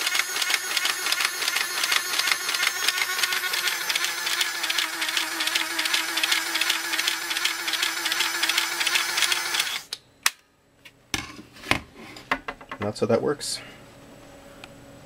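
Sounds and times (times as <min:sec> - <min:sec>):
rapid mechanical clicking: 0:00.0 - 0:09.9
steady hum: 0:00.0 - 0:15.0.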